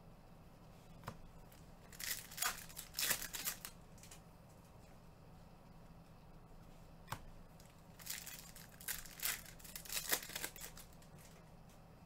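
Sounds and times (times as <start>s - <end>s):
foil wrappers crinkling: 1.8s - 4.2s, 7.6s - 11.4s.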